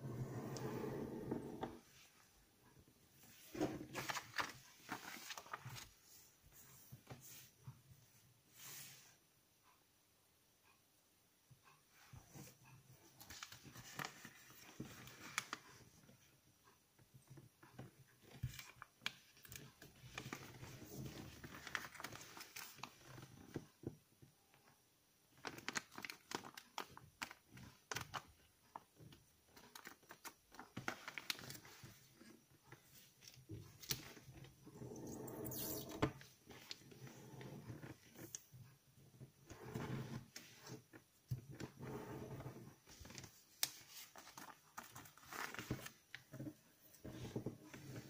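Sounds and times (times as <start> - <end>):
paper rustling and crinkling: 3.4 - 6.1, 13.3 - 15.7, 18.4 - 23.3, 25.4 - 28.8, 29.6 - 34.3, 42.8 - 46.4.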